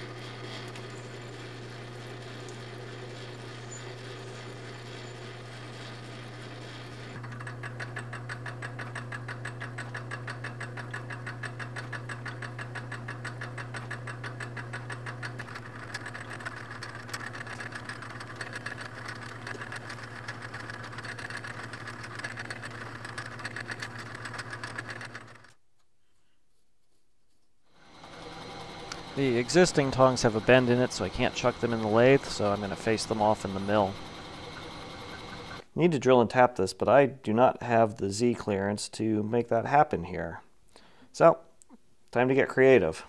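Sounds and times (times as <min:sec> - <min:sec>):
lathe motor hum: 0:00.0 - 0:25.5, 0:27.8 - 0:35.6
fast even clatter: 0:06.9 - 0:25.6, 0:28.0 - 0:35.6.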